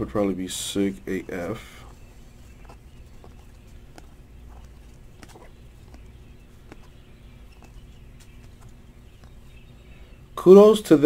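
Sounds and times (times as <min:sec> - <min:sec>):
low steady hum: 0:00.0 - 0:11.0
trading cards flipped by hand: 0:02.2 - 0:09.4.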